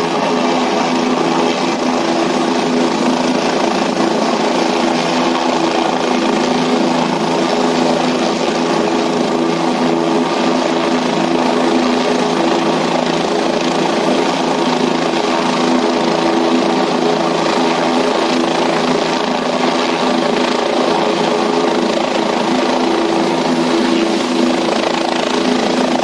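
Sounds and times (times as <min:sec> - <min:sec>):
helicopter turbine and rotor drone: 0:00.0 - 0:26.0.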